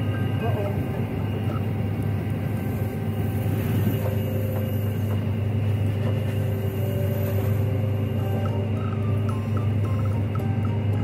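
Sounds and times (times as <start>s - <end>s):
combine harvester droning: 0.0s - 11.0s.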